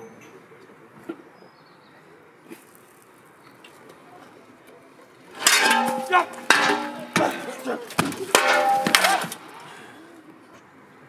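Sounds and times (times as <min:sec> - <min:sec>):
metal shovels scraping stone: 0:05.3 - 0:09.4.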